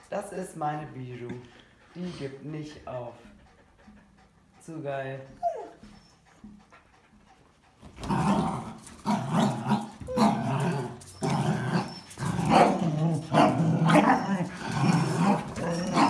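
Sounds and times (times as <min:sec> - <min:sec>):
dogs growling: 0:05.4 - 0:16.0.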